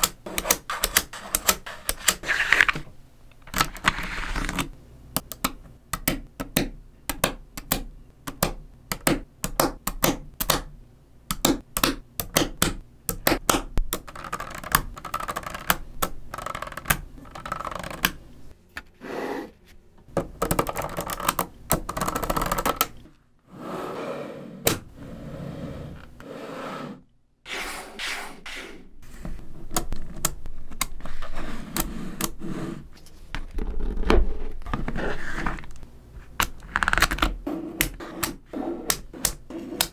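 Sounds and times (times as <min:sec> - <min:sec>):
magnetic balls clicking and rattling: 0:11.3 - 0:18.5, 0:20.1 - 0:23.1.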